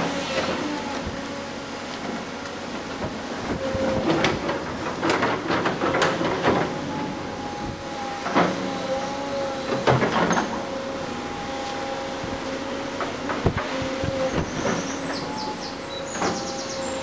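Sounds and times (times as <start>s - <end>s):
excavator engine whine: 0.0s - 17.0s.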